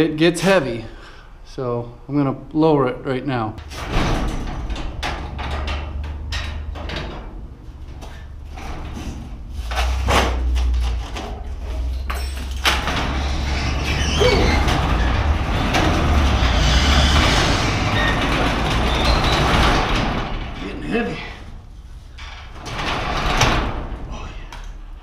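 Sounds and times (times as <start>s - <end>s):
garage door clicks and knocks: 3.6s - 24.9s
rollers rumbling along tracks: 4.7s - 22.1s.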